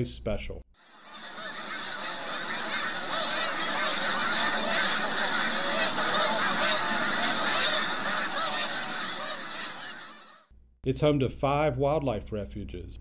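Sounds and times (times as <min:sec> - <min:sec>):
flock of geese honking: 0:00.9 - 0:10.4.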